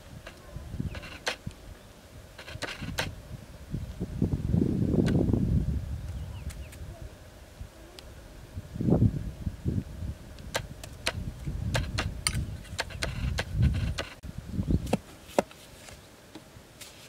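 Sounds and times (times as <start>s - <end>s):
clods and grit clicking: 0.2s - 1.6s, 2.4s - 3.1s, 10.4s - 14.2s.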